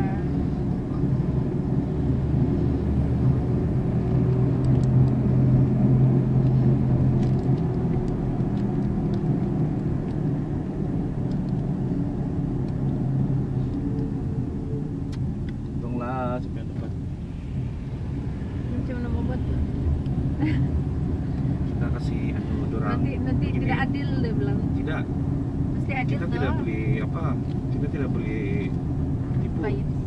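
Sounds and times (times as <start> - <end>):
car engine and tyres droning: 0.0 - 30.0.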